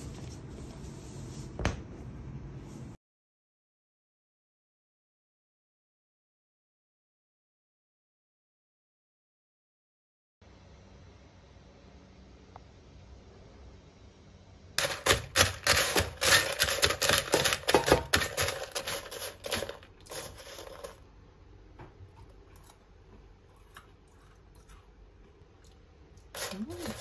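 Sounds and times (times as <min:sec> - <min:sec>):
spoon stirring crunchy granola: 0:14.8 - 0:21.0, 0:26.2 - 0:27.0.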